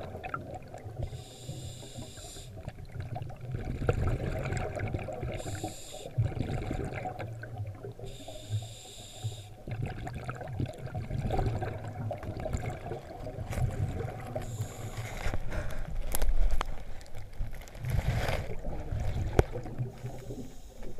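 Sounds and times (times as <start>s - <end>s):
muffled underwater rumble: 0.0s - 20.9s
water gurgling: 0.0s - 20.9s
diver breathing in: 1.0s - 2.6s, 5.4s - 6.2s, 8.1s - 9.6s, 14.4s - 16.0s, 19.9s - 20.9s.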